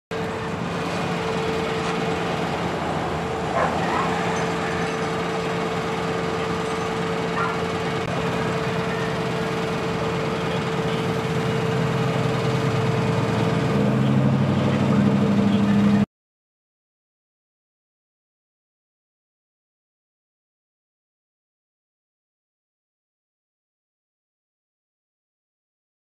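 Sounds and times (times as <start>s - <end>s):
vehicle engine humming: 0.1s - 16.1s.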